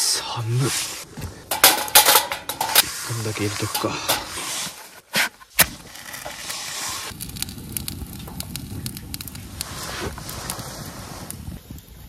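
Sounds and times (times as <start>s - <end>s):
fire crackling and popping: 0.3s - 12.0s
fuel being laid in: 1.1s - 8.6s.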